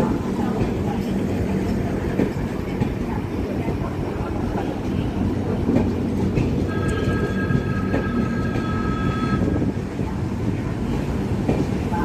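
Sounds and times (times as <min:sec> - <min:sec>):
train coaches rumbling past: 0:00.0 - 0:12.0.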